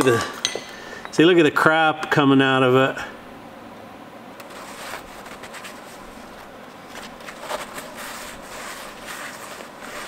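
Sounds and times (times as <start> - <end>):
paper towel wiping inside engine bore: 4.5 - 10.0.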